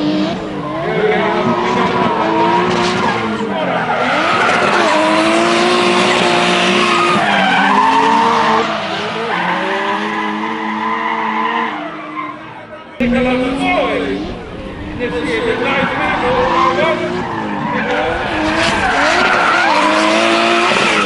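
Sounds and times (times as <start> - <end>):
car engine revving: 0.0 - 21.0
tyres squealing and skidding: 0.0 - 21.0.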